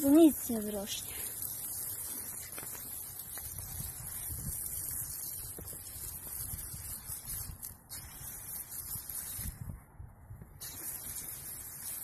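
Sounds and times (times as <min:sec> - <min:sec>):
hose water spraying on soil: 0:00.0 - 0:09.7, 0:10.6 - 0:12.0
wind on microphone: 0:03.4 - 0:11.4.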